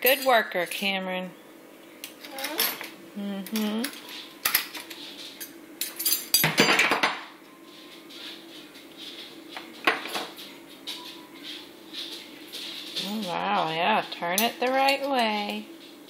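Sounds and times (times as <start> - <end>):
metal cutlery clinking: 4.4 - 7.1.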